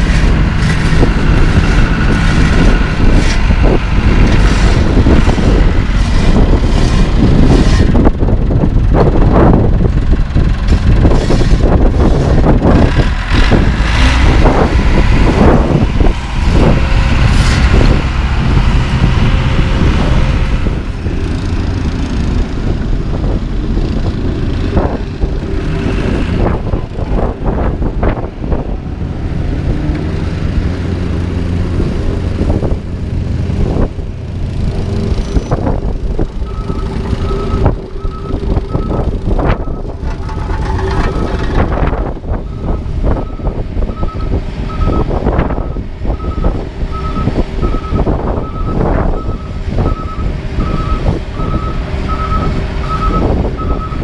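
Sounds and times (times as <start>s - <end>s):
loud knocks and scrapes: 0.0s - 8.1s, 38.6s - 42.1s
diesel machinery engines droning: 0.0s - 54.0s.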